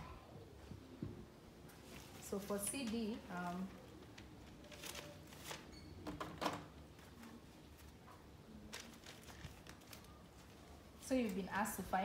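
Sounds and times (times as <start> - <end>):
paper rustling: 1.7 - 5.7, 8.6 - 11.4.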